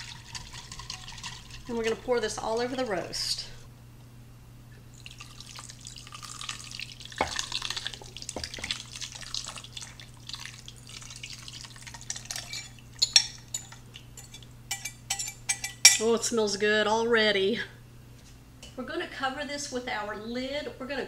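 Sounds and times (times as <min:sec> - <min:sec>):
liquid pouring and splashing: 0:00.0 - 0:02.1, 0:04.9 - 0:13.0.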